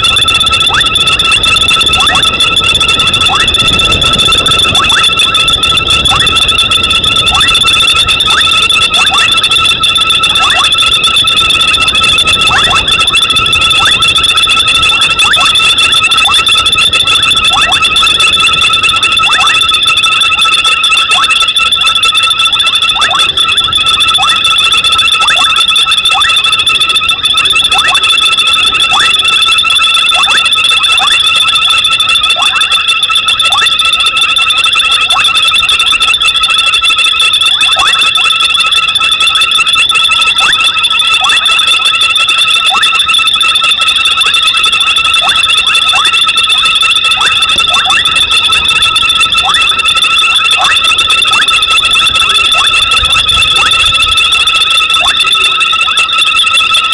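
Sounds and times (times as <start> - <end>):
frogs trilling: 0.7 - 2.4, 3.2 - 19.6, 25.0 - 26.5, 37.7 - 37.9.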